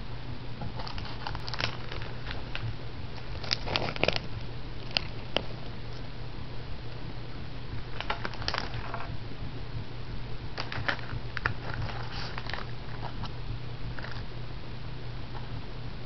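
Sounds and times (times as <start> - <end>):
low steady hum: 0.0 - 16.0
cat crunching crackers: 0.8 - 6.1, 7.8 - 9.1, 10.6 - 13.3, 13.9 - 14.2.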